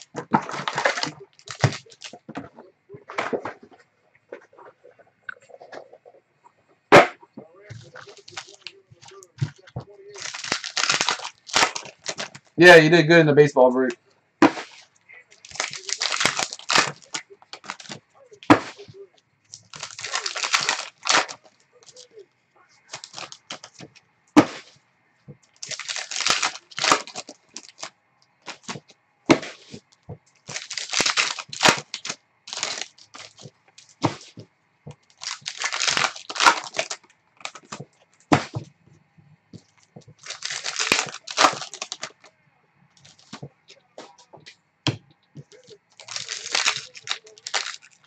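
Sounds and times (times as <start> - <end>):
card pack wrappers tearing: 0.0 - 2.5, 7.7 - 12.6, 14.6 - 18.9, 19.5 - 22.1, 22.8 - 24.7, 25.5 - 27.9, 28.5 - 29.8, 30.4 - 34.4, 35.0 - 38.6, 40.1 - 42.3, 43.0 - 44.2, 45.4 - 48.0.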